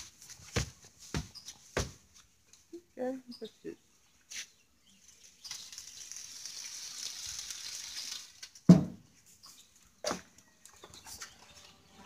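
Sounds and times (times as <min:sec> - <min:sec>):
food sizzling on a grill: 0:05.4 - 0:08.4.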